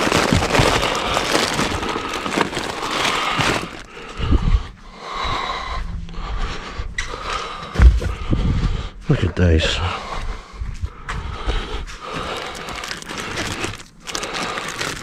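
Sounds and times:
plastic bags rustling: 0.0 - 4.3, 12.0 - 15.0.

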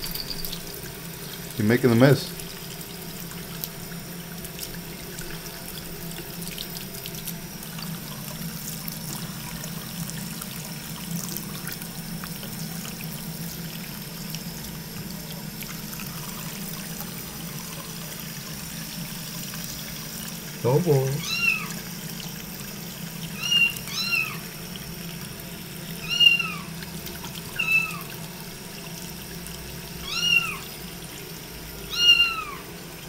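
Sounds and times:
faucet running into sink: 0.0 - 33.0
water splashes and drips: 0.0 - 33.0.

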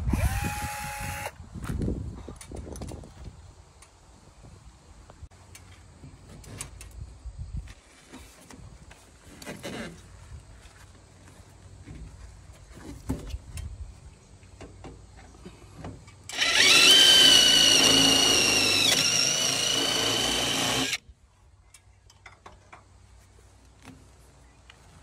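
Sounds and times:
cordless drill drilling metal: 0.0 - 1.4, 16.3 - 21.0.

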